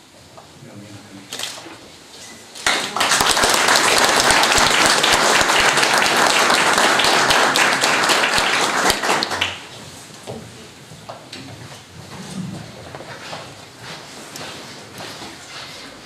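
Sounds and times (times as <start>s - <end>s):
audience applauding: 2.6s - 9.8s.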